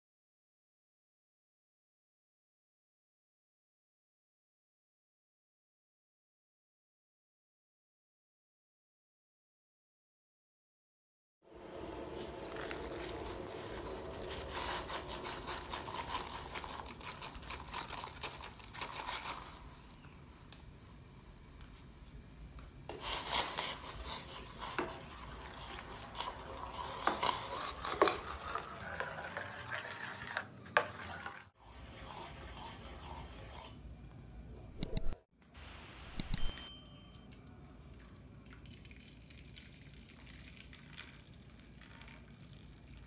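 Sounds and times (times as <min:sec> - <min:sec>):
metal spoon stirring in saucepan: 0:12.4 - 0:19.5, 0:22.9 - 0:33.8
faint steady hiss: 0:35.4 - 0:43.0
ringing metal clink: 0:36.2 - 0:37.3.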